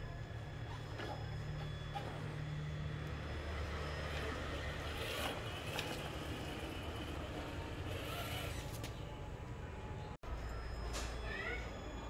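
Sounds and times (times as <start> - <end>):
rc car motor humming: 0.0 - 8.8.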